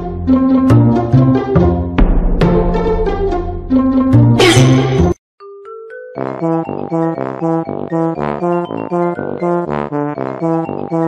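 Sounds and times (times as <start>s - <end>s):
upbeat background music: 0.0s - 11.0s.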